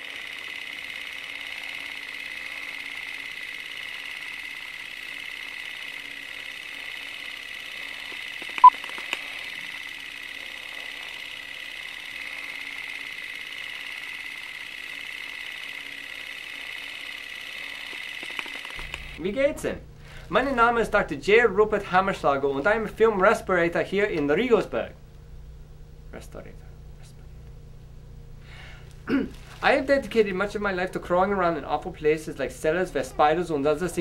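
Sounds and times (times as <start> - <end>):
film projector whirring: 0.0 - 26.2, 27.4 - 34.0
small click: 8.4 - 9.2, 17.9 - 19.1.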